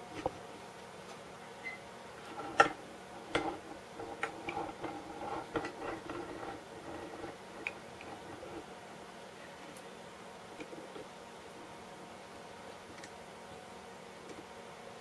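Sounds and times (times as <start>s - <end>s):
scrapes: 2.2s - 8.8s.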